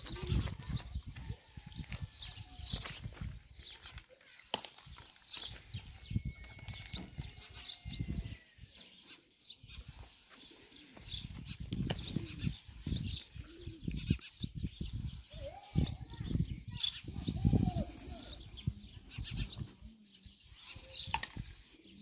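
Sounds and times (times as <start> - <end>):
birds chirping: 0.0 - 22.0
aerosol spray hissing: 4.5 - 6.0, 7.4 - 9.2, 9.8 - 13.8, 14.6 - 16.1, 16.8 - 18.4, 20.4 - 22.0.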